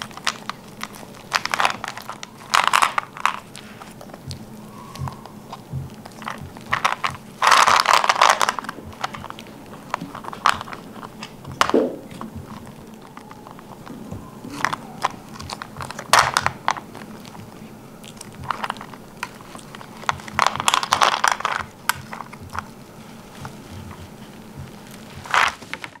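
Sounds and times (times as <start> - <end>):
plastic toy clicks and rattles: 0.0 - 4.1, 6.1 - 13.9, 14.5 - 17.4, 18.1 - 22.7
monkey crunching candy: 0.0 - 26.0.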